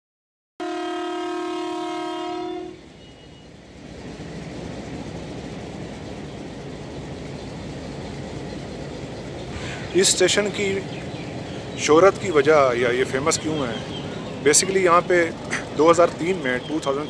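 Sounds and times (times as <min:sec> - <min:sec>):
locomotive horn blast: 0:00.6 - 0:03.5
diesel engine running: 0:02.8 - 0:17.0.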